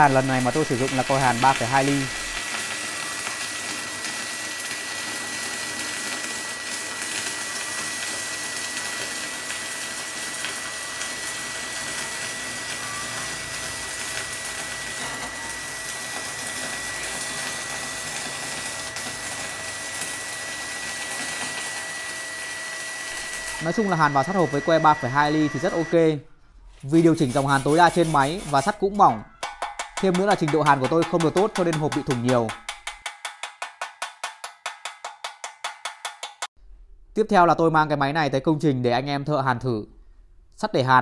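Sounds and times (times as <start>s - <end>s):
welding arc crackling and hissing: 0.0s - 26.1s, 26.9s - 29.0s, 30.0s - 33.0s
faint high tone: 12.7s - 13.6s.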